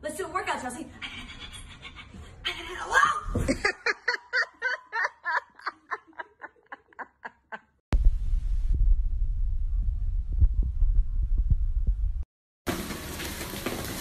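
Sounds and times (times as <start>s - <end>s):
person laughing hard: 3.4s - 7.8s
steady low rumble: 8.0s - 12.3s.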